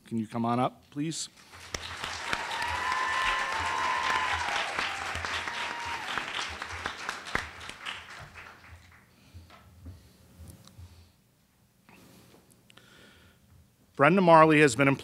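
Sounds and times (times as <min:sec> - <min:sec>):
audience applauding: 0:01.4 - 0:09.1
high whoop: 0:02.1 - 0:06.8.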